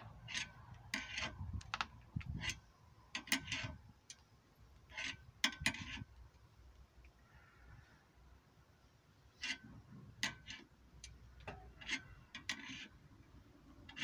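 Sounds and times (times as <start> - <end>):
car jack metal clicks and rasps: 0.2 - 3.8, 4.8 - 6.1, 9.4 - 13.0.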